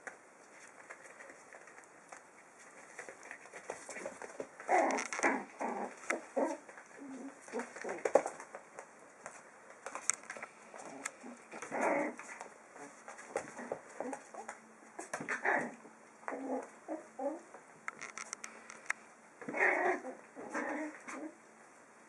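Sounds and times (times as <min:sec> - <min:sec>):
paws scuffling and scratching: 0:00.0 - 0:15.7.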